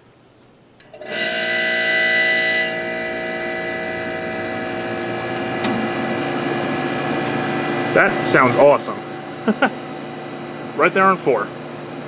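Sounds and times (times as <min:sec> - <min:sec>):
dehumidifier running: 0:00.0 - 0:12.0
humidistat switch click: 0:05.6 - 0:06.3.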